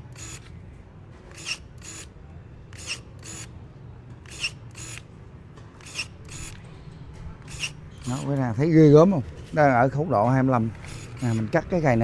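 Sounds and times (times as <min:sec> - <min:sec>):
electric pruning shears whirring: 0:10.8 - 0:11.5.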